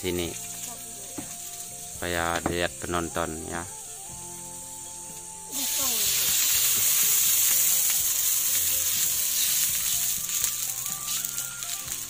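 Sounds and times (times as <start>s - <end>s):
food sizzling in a wok: 0.0s - 12.0s
small crackles: 5.6s - 12.0s.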